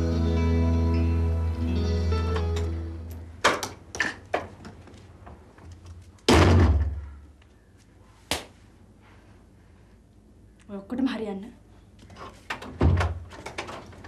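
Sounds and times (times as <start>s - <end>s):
door slamming with deep boom: 6.3s - 7.0s.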